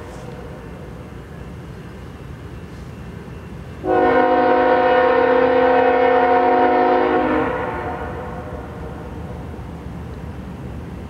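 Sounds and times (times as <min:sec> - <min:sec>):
locomotive air horn blast: 0:03.8 - 0:08.6.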